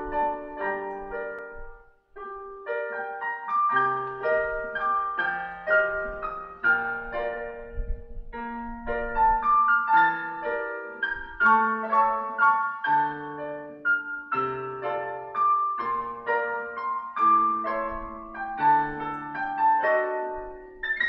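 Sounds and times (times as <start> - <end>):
piano playing: 0.0 - 21.0.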